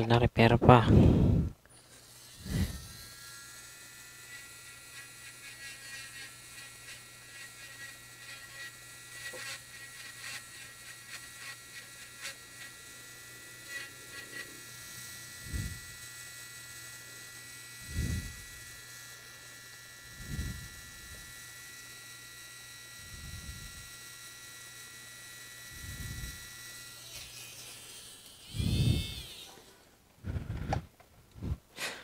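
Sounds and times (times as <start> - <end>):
electrical hum and whine: 0.0 - 32.0
tool scratching circuit board: 4.2 - 19.1, 25.8 - 29.6
low thumps: 30.2 - 31.7.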